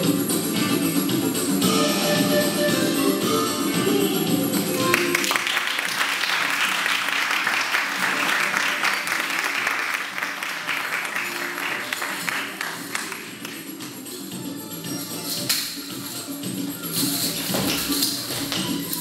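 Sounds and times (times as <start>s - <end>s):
audience applauding: 4.8s - 13.6s.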